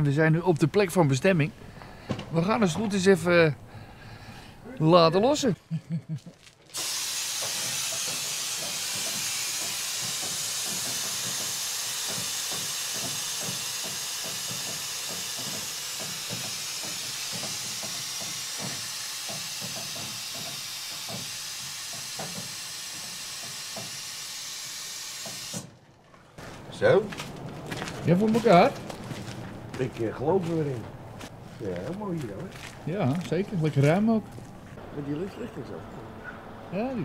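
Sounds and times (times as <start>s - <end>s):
compressed air hissing: 6.7s - 25.7s.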